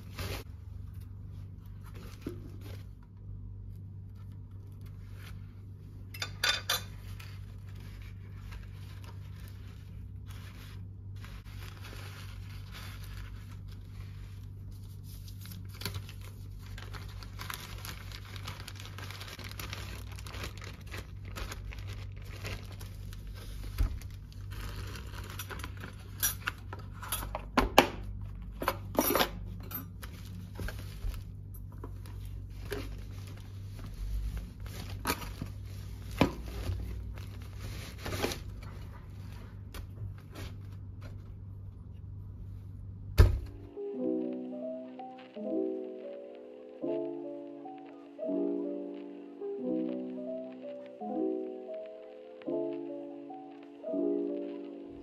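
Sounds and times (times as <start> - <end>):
paper rustling: 7.0 - 26.6, 29.9 - 41.4
plastic bag crinkling: 7.0 - 26.8, 29.9 - 40.9.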